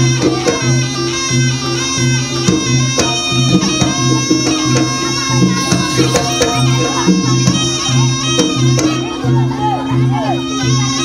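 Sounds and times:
shawm melody: 5.4 - 8.0
low gong-chime pattern: 5.6 - 7.8.

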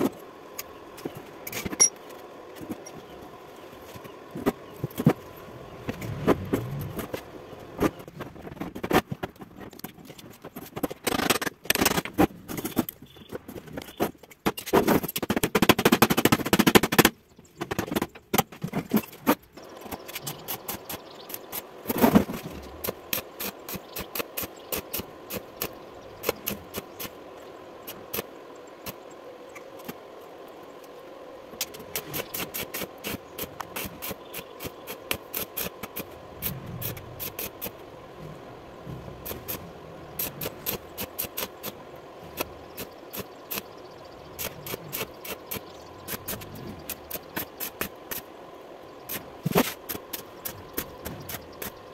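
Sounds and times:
welding arc crackling: 19.7 - 29.9, 31.6 - 37.8, 39.1 - 48.3.

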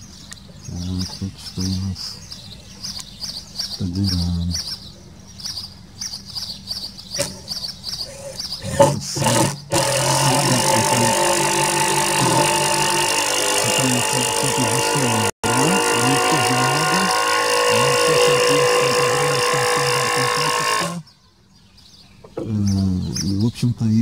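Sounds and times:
small birds chirping: 0.0 - 12.6, 17.7 - 24.0
air conditioner units humming: 0.0 - 21.1.

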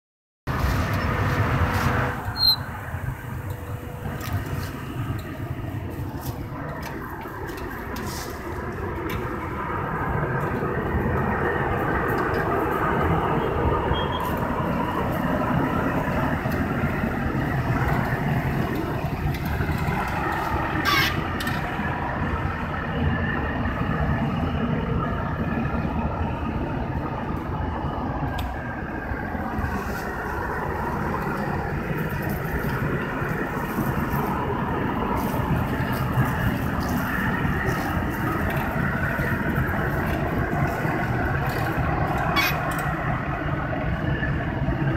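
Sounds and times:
tractor engine running: 0.5 - 44.9.

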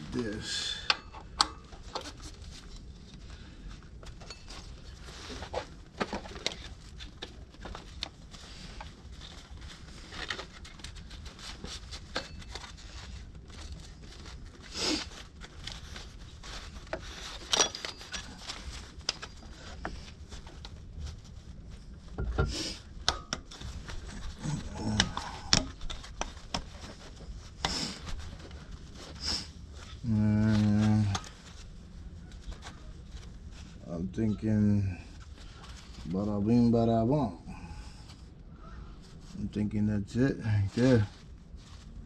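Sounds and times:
fabric rustle: 1.5 - 42.0.

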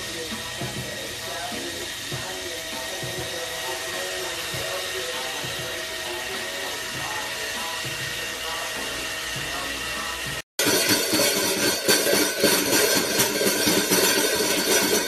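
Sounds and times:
robot vacuum cleaner whirring: 0.0 - 15.0.

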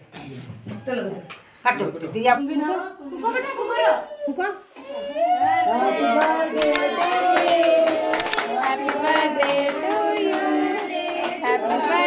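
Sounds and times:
adults and children singing: 5.6 - 12.0
hands clapping: 6.6 - 12.0.

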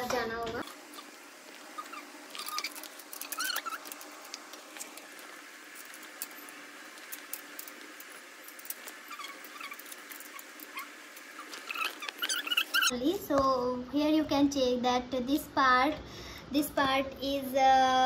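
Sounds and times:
faint steady hum: 0.0 - 18.0
faint high squeaks: 1.8 - 3.9, 9.0 - 12.9.

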